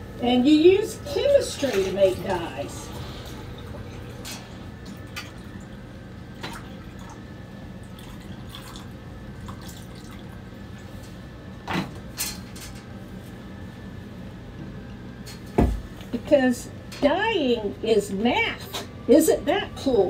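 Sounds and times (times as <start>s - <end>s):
fan humming: 0.0s - 20.0s
water pouring and trickling: 1.8s - 11.1s.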